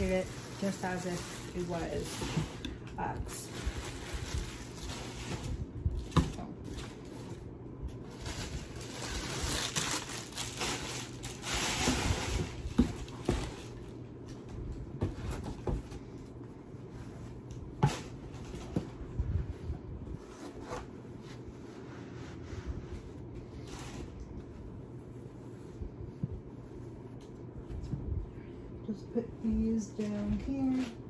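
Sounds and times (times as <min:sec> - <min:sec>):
packaging rustling and crinkling: 0:00.0 - 0:16.0.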